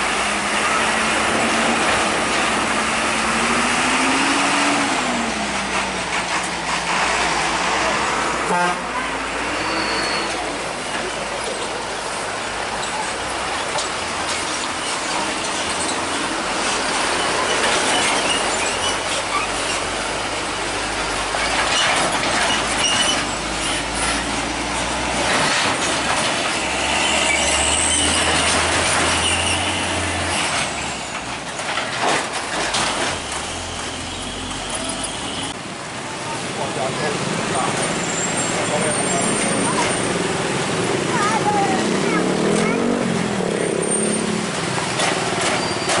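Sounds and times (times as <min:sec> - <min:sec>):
train rumbling past: 0:00.0 - 0:46.0
high squeal: 0:09.4 - 0:10.6, 0:26.9 - 0:28.4
wheels clattering over rails: 0:10.2 - 0:35.2, 0:36.8 - 0:46.0.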